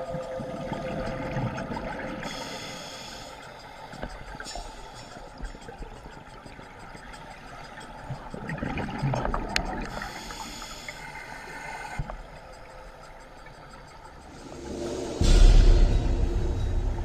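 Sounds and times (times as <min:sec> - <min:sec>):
scuba regulator breathing: 0:09.9 - 0:12.0.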